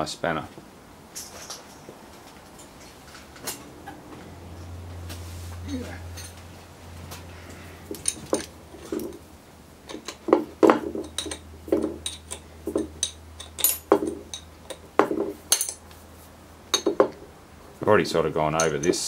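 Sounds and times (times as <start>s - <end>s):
steady low hum: 0.0s - 19.0s
spanner clinking on metal: 6.1s - 6.5s, 7.8s - 15.8s, 16.7s - 17.2s, 18.5s - 19.0s.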